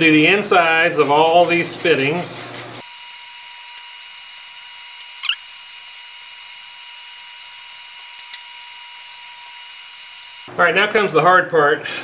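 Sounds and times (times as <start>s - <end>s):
brush scratching copper fitting: 0.1s - 2.9s.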